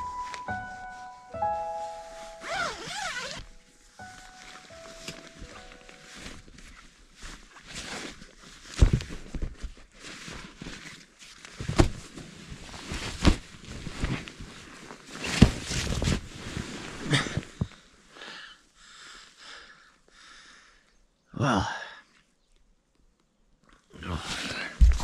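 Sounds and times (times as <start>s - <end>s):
nylon sleeping bag rustling: 0.0s - 17.9s.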